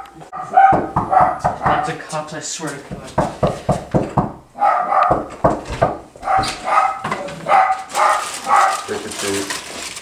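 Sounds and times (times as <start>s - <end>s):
dog barking: 0.0s - 2.0s, 4.6s - 5.3s, 6.2s - 8.9s.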